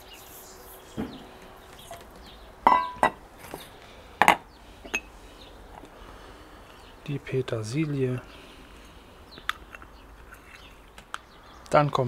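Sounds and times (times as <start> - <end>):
dishes clinking against mixing bowl: 2.7 - 3.2.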